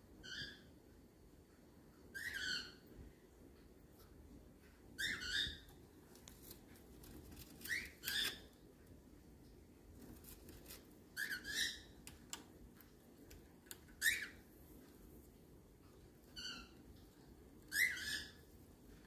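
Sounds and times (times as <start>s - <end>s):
cockatiel whistled chirps: 5.0s - 5.7s, 14.0s - 14.4s, 17.7s - 18.4s
faint clicks: 12.0s - 14.1s.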